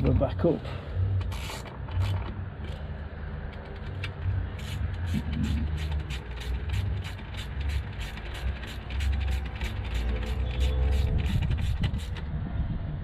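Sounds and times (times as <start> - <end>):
ratchet spanner clicking: 1.2 - 2.8, 3.5 - 12.2.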